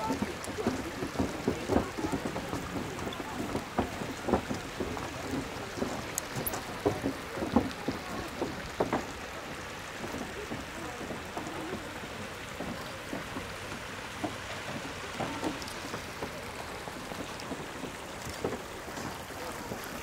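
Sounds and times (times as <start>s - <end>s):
faint voices: 0.0s - 20.0s
footsteps on wooden boardwalk: 0.0s - 20.0s.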